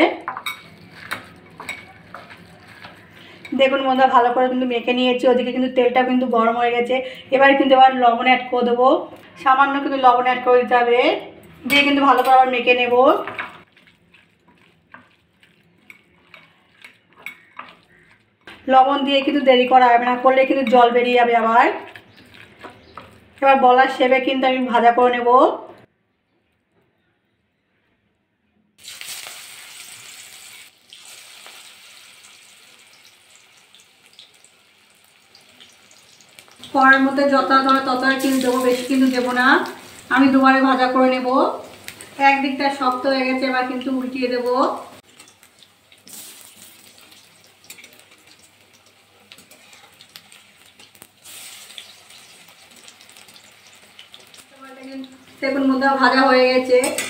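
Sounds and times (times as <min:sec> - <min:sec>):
fritter sizzling in hot oil: 0:28.8 - 0:57.0.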